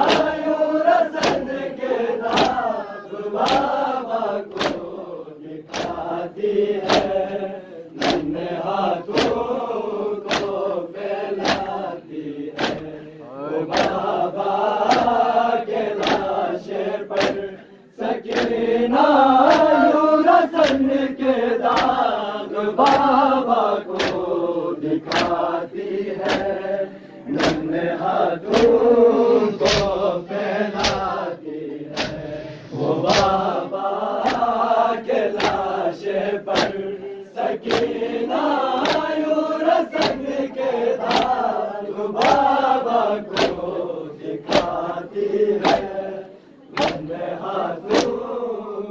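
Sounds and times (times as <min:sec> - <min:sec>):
hands slapping chests: 0:00.0 - 0:05.0, 0:05.6 - 0:15.3, 0:15.9 - 0:17.5, 0:18.2 - 0:18.7, 0:19.4 - 0:21.0, 0:21.6 - 0:22.2, 0:22.8 - 0:26.7, 0:27.3 - 0:28.9, 0:29.6 - 0:30.1, 0:30.7 - 0:32.3, 0:32.9 - 0:34.7, 0:35.3 - 0:36.9, 0:37.6 - 0:39.2, 0:39.8 - 0:40.4, 0:41.0 - 0:42.6, 0:43.3 - 0:43.8, 0:44.4 - 0:45.0, 0:45.6 - 0:46.0, 0:46.7 - 0:48.2
crowd of men chanting: 0:00.0 - 0:48.9.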